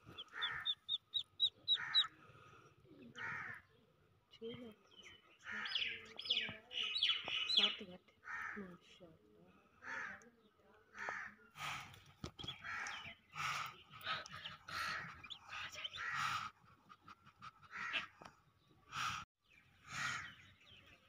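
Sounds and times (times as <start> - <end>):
ducklings peeping: 0.0 - 2.1, 12.2 - 18.3.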